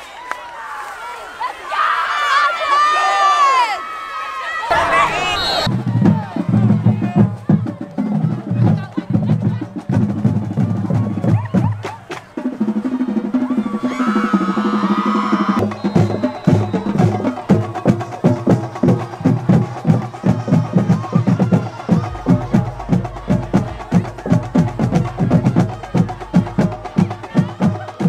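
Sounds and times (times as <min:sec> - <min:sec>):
music with knocking percussive beat: 0:15.6 - 0:28.0
deep bass note: 0:21.8 - 0:27.6.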